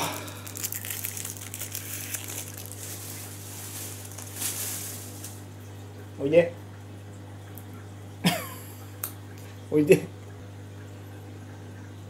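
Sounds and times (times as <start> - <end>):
handling noise crinkling and clicks: 0.4 - 5.4
rustle: 2.8 - 5.4.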